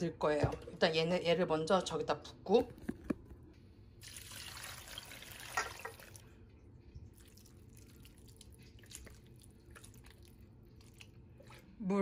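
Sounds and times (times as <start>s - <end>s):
sauce pouring into a pot: 4.0s - 6.3s, 7.1s - 11.7s.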